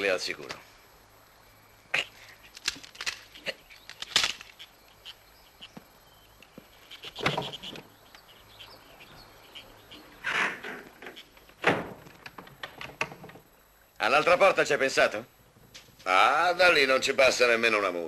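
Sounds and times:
wooden knocks: 10.3s - 13.4s.

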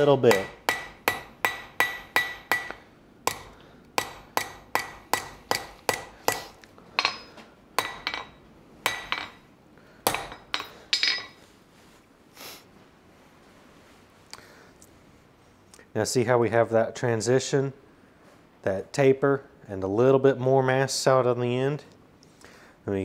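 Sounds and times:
hammer striking steel on anvil: 0.0s - 11.4s.

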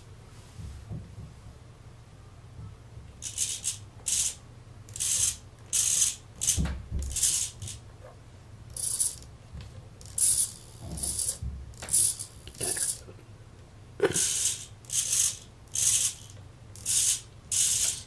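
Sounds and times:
steady low hum: 0.0s - 18.0s
servos whirring: 3.2s - 7.8s, 10.0s - 13.0s, 14.0s - 18.0s.

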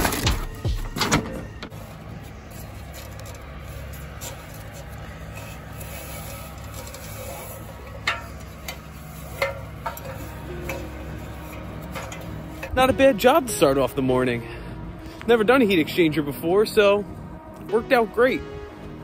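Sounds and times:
ladder knocks and rattles: 0.0s - 1.7s.

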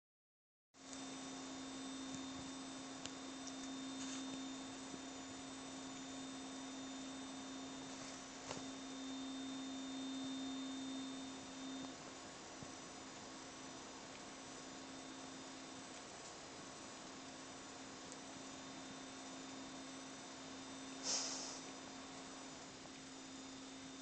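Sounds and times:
high whine: 0.9s - 16.0s
low hum-like tone: 0.9s - 24.0s.

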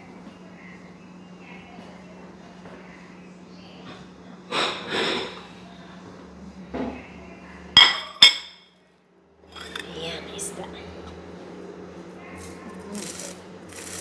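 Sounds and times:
dish clinking against something hard: 7.8s - 8.6s, 9.5s - 9.9s
rustle and scrape: 12.3s - 14.0s.

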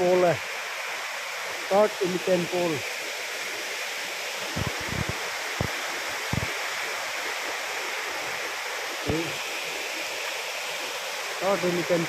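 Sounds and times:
waterfall rushing: 0.0s - 12.0s
low thumps: 6.3s - 6.5s.

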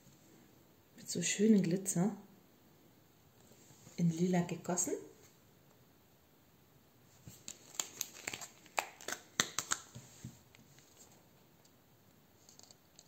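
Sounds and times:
plastic pot crackling and clicking: 7.4s - 10.0s.

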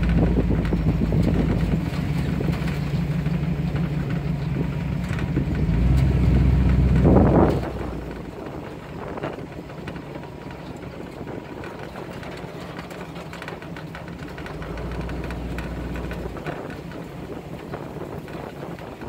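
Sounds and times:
small clicks and knocks: 0.0s - 19.0s
vehicle engine rumbling: 0.0s - 19.0s.

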